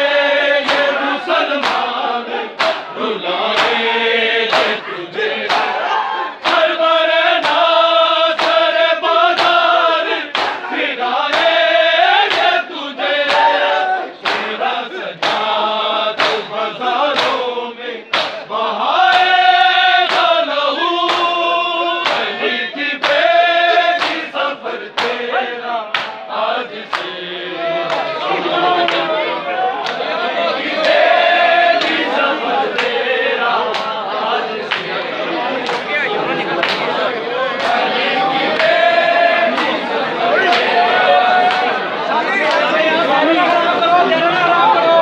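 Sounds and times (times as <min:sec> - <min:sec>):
men singing together: 0:00.0 - 0:45.0
hands slapping chests: 0:00.6 - 0:01.0, 0:01.6 - 0:02.0, 0:02.6 - 0:03.8, 0:04.5 - 0:05.8, 0:06.4 - 0:06.8, 0:07.4 - 0:08.7, 0:09.3 - 0:09.7, 0:10.3 - 0:11.6, 0:12.2 - 0:12.6, 0:14.2 - 0:14.6, 0:15.2 - 0:15.6, 0:16.2 - 0:17.4, 0:18.1 - 0:18.5, 0:20.0 - 0:20.4, 0:21.0 - 0:21.4, 0:22.0 - 0:22.4, 0:23.0 - 0:24.4, 0:25.0 - 0:25.2, 0:25.9 - 0:26.2, 0:26.9 - 0:27.2, 0:32.7 - 0:33.0, 0:33.7 - 0:34.0, 0:36.6 - 0:36.9.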